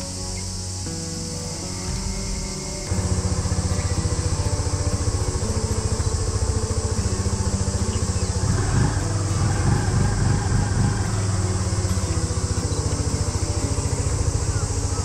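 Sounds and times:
motorcycle engine idling: 0.0s - 15.0s.

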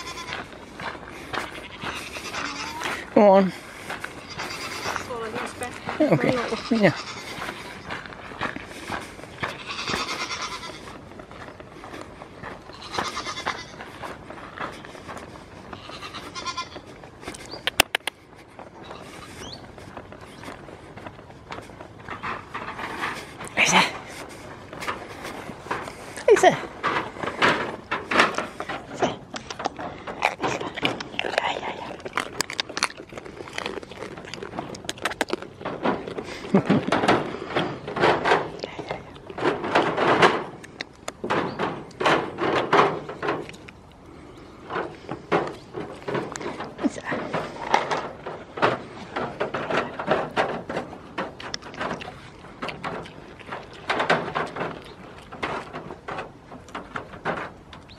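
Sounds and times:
goats bleating: 0.0s - 7.9s, 9.3s - 11.1s, 12.6s - 14.0s, 15.6s - 17.0s
footsteps through grass: 0.0s - 17.6s
goats rustling against camera: 0.0s - 57.9s.

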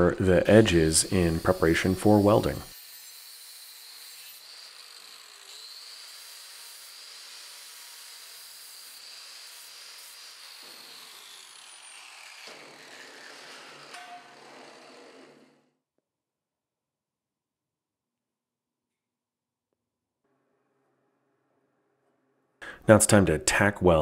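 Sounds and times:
angle grinder whining: 0.0s - 15.6s.

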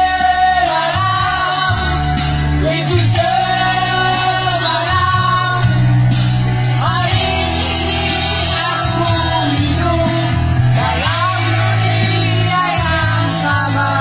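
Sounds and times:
man singing into a microphone: 0.0s - 5.9s, 6.6s - 14.0s
music with bass line: 0.0s - 14.0s.

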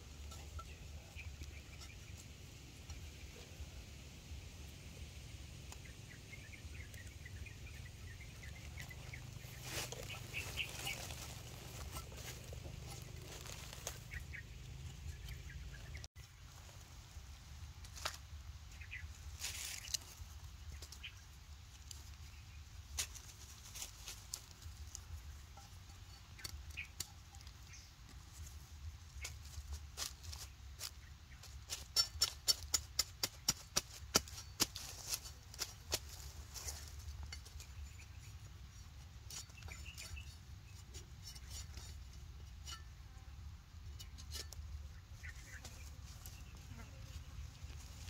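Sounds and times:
dry leaves rustling: 0.0s - 42.3s, 44.5s - 48.0s
small bird chirping: 5.6s - 16.1s, 18.7s - 21.6s, 24.9s - 29.5s, 36.1s - 42.0s, 42.6s - 48.0s.

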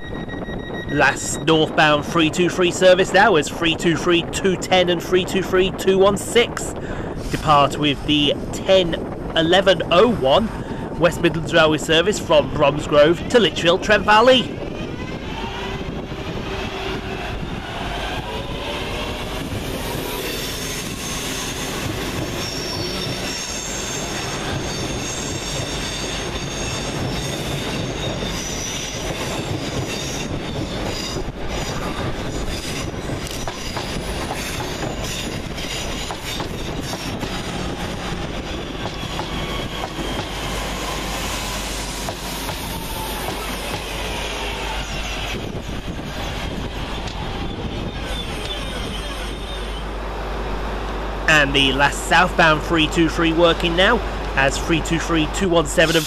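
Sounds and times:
train wheels on rails: 14.5s - 55.0s.

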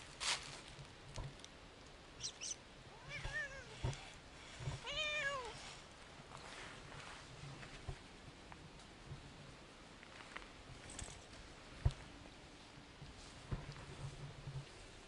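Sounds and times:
cat meowing: 2.9s - 3.8s, 4.8s - 5.6s.

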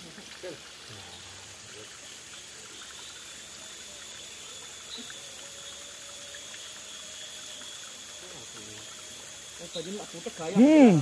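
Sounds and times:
water trickling in a rocky stream: 0.0s - 11.0s.

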